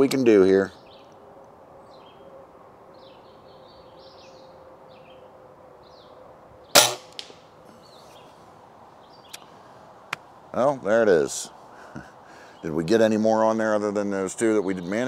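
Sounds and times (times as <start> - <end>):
small birds chirping: 0.6 - 1.2, 3.0 - 6.9, 7.6 - 13.3, 14.1 - 15.0
air rifle shot: 6.8 - 7.5.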